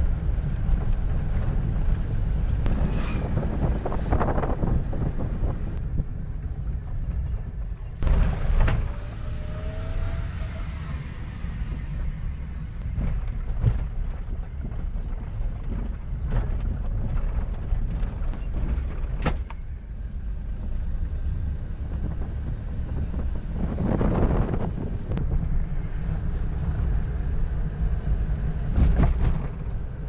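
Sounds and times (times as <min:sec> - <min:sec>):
car engine and road rumble: 0:00.0 - 0:30.0
car knocking over bumps: 0:12.8 - 0:19.7, 0:28.6 - 0:30.0.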